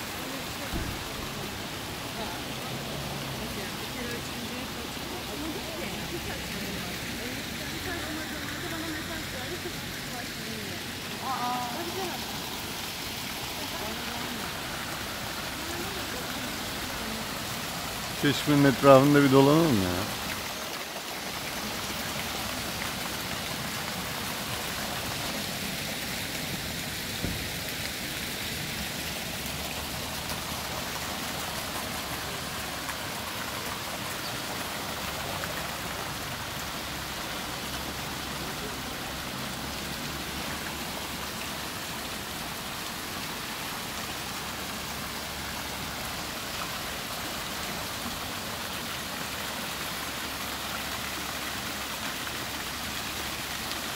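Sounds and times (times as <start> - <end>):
fountain water splashing into basin: 0.0 - 53.9.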